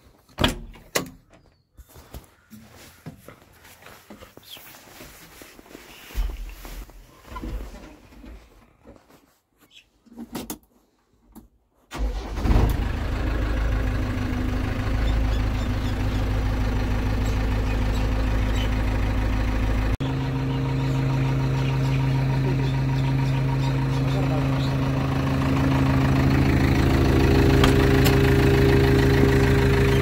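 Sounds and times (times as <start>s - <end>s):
diesel engine starting and idling: 11.9s - 30.0s.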